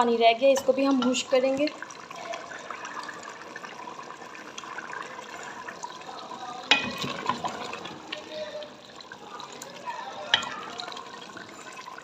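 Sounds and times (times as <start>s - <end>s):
gravy bubbling in a pot: 0.0s - 12.0s
wooden spoon stirring: 6.6s - 8.7s, 9.4s - 12.0s.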